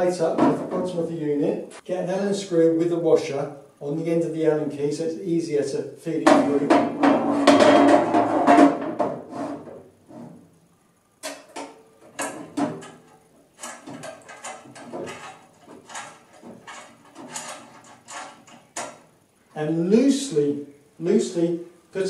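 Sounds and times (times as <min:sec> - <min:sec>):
metal plate clattering and scraping: 0:06.3 - 0:10.4, 0:11.2 - 0:19.1
screws clicking and knocking: 0:11.2 - 0:19.0.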